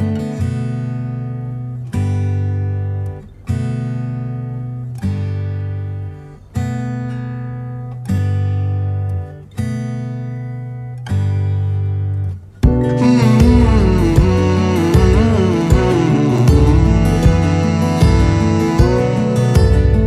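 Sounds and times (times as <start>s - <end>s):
acoustic guitar strumming chords: 0.0s - 20.0s.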